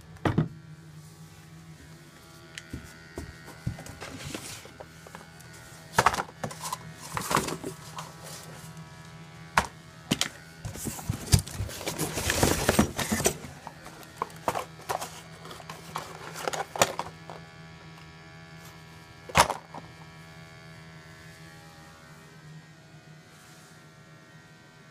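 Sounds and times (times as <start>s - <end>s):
packaging rustling: 10.1s - 17.2s.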